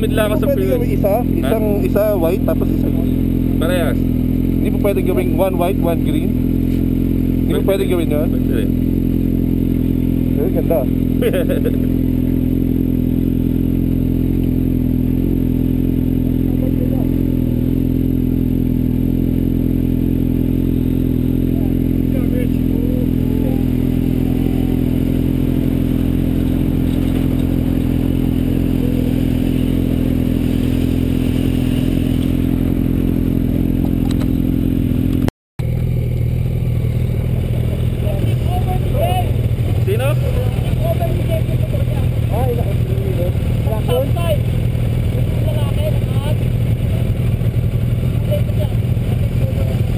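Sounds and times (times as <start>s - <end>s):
motorcycle engine idling: 0.0s - 49.9s
faint voices: 21.5s - 26.8s.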